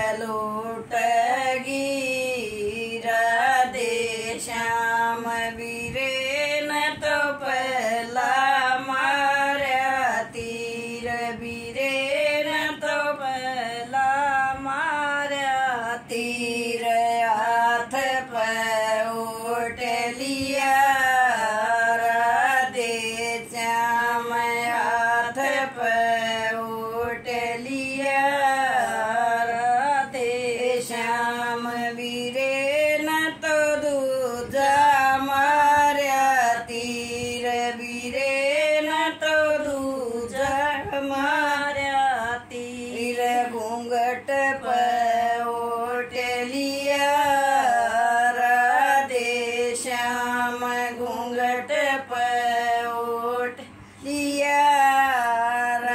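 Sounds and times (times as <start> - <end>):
elderly woman singing unaccompanied: 0.0 - 55.9.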